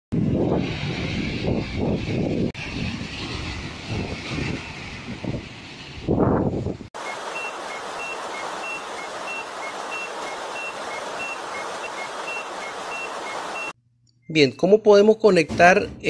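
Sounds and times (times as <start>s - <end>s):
electronic two-tone beeping: 7.0s - 13.8s.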